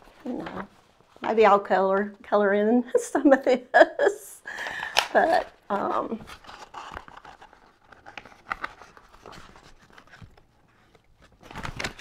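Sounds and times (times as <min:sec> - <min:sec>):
paper pages rustling: 0:00.0 - 0:02.0, 0:05.0 - 0:12.0.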